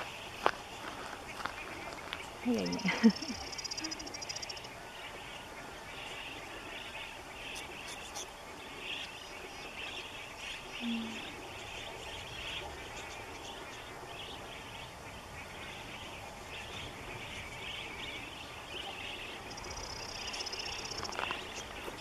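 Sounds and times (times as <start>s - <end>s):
budgerigars chirping and chattering: 0.0s - 22.0s.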